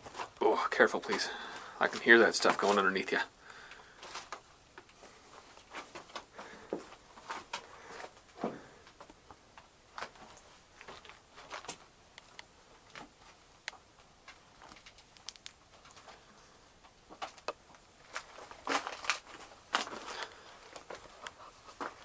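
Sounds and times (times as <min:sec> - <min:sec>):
footsteps crunching on loose rock: 0:01.0 - 0:02.9, 0:17.1 - 0:22.0.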